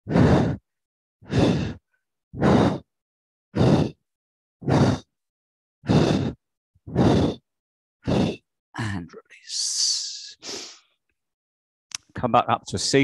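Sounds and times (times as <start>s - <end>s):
man breathing forcefully into microphone: 0.0s - 1.8s, 2.4s - 2.9s, 3.5s - 4.0s, 4.6s - 5.1s, 5.8s - 8.5s.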